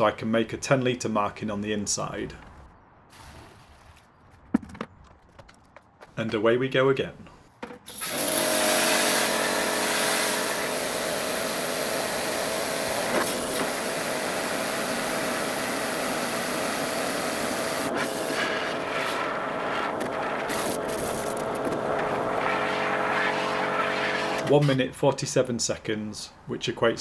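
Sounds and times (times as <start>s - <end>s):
pump motor hum: 7.9s - 24.5s.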